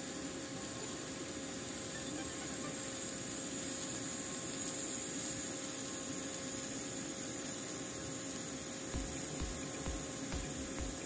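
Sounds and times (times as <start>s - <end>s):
faint constant tone: 0.0s - 11.0s
welding arc hissing: 0.0s - 11.0s.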